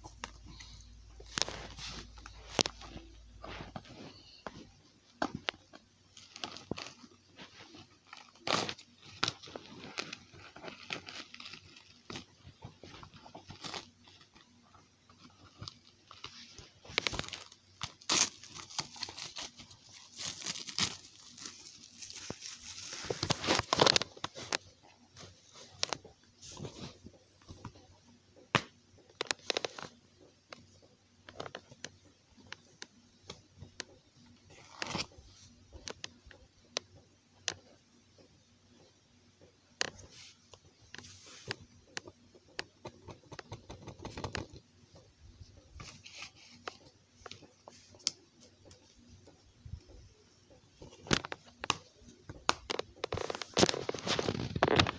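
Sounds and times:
plastic wrap crinkling: 0:00.1 - 0:26.0, 0:50.8 - 0:54.9.

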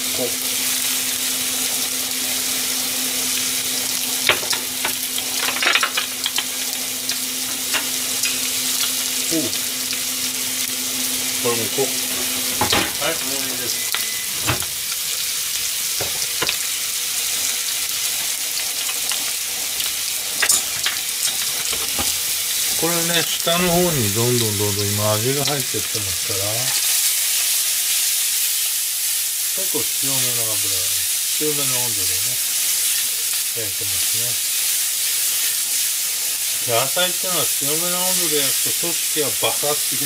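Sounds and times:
food sizzling in a frying pan: 0:00.0 - 0:40.0
plates and utensils clicking: 0:04.3 - 0:06.5, 0:20.4 - 0:22.2.

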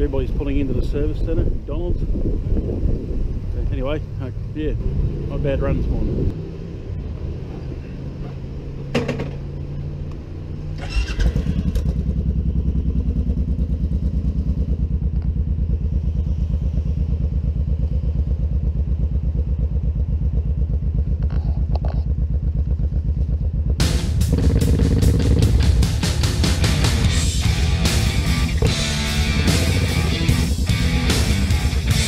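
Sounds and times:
quiet steady engine hum: 0:00.0 - 0:26.3
motorcycle engine starting and idling: 0:06.4 - 0:32.0.

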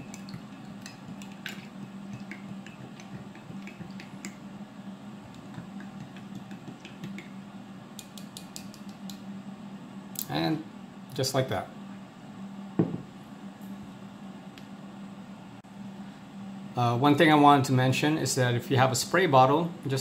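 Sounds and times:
plastic spoon stirring in mug: 0:00.0 - 0:04.4, 0:05.3 - 0:07.3.

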